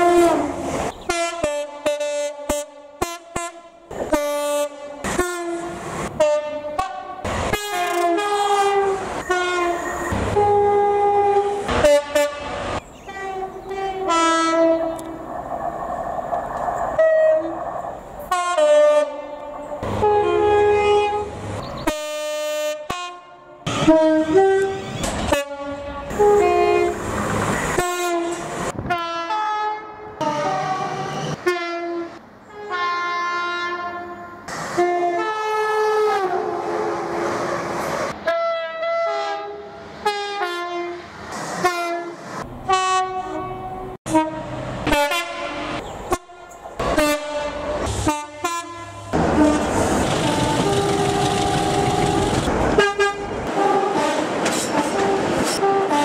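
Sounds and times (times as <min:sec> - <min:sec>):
multi-tone train horn blasts: 0:00.0 - 0:15.2, 0:17.0 - 0:17.6, 0:18.3 - 0:27.1, 0:27.7 - 0:37.5, 0:38.2 - 0:41.0, 0:41.6 - 0:56.0
train wheels passing: 0:07.1 - 0:21.6, 0:26.0 - 0:28.9, 0:45.5 - 0:56.0.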